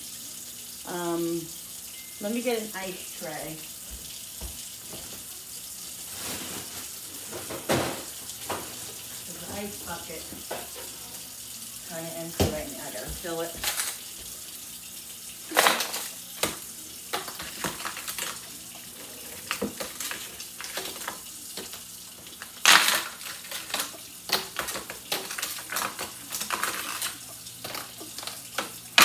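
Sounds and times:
tap running: 3.6 - 5.3, 7.3 - 11.2, 12.1 - 14.9
ice cubes cracking and clicking: 15.5 - 18.5, 22.4 - 29.0.

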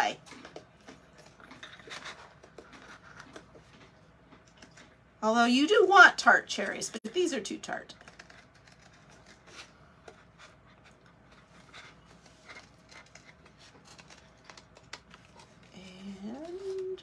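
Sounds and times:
scissors snipping paper: 6.6 - 10.2, 12.4 - 17.0
paper rustle: 7.9 - 10.6, 11.2 - 17.0.

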